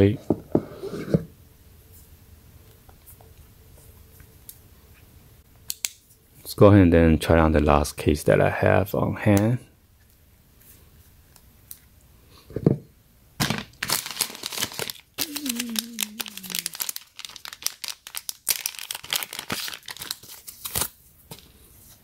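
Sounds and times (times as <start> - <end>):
plastic packaging crinkling: 13.4 - 21.4.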